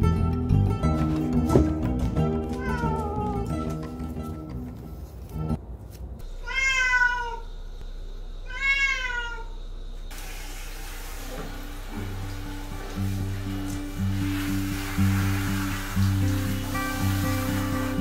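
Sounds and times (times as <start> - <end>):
cat meowing loudly: 2.5 - 3.6, 6.4 - 7.4, 8.4 - 9.5.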